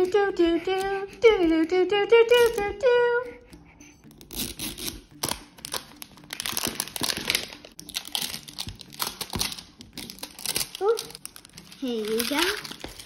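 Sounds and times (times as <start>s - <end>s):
plastic wrapper crinkling and tearing: 2.4s - 2.6s, 4.2s - 13.0s.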